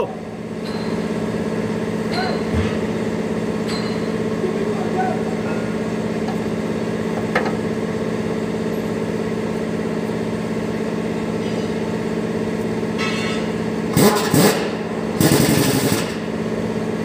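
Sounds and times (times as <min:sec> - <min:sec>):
diesel truck engine idling: 0:04.2 - 0:11.4.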